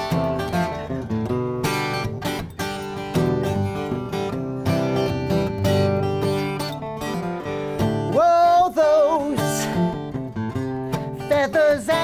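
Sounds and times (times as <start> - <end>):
acoustic guitar strumming: 0.0 - 12.0
man singing: 7.8 - 10.2, 10.9 - 12.0.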